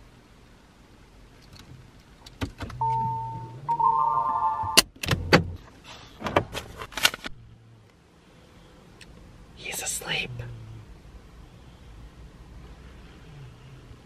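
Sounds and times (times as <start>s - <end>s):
car engine hum: 0.0s - 5.8s, 7.3s - 14.0s
electronic chime tones: 2.8s - 4.8s.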